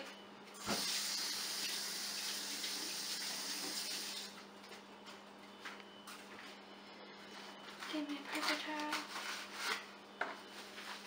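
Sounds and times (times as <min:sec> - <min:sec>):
tap water running: 0:00.6 - 0:04.3.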